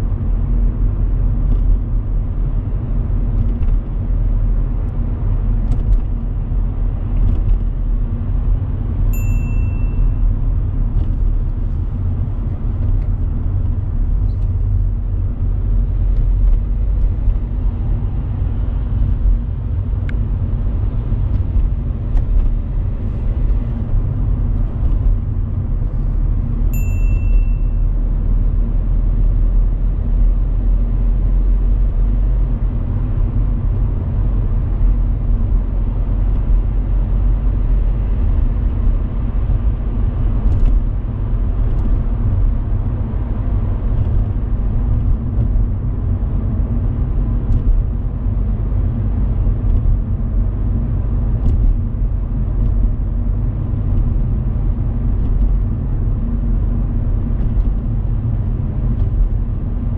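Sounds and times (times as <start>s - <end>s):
car engine and road noise: 0.0s - 59.9s
short high beep: 9.2s - 10.2s, 26.8s - 27.8s.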